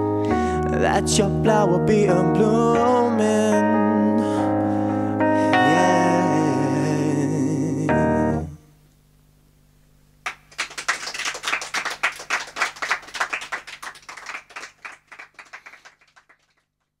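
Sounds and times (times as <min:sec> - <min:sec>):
small group clapping: 0:10.2 - 0:16.9.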